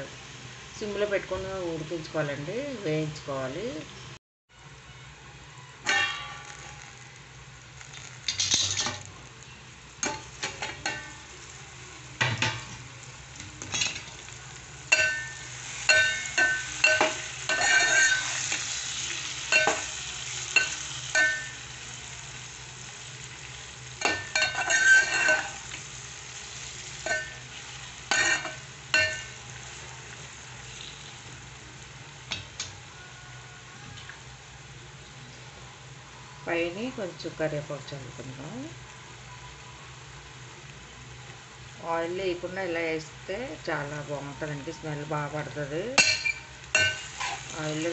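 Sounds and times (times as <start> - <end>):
light frying sizzle: 0.0 - 47.9
metal ladle scraping a pot: 15.9 - 18.7.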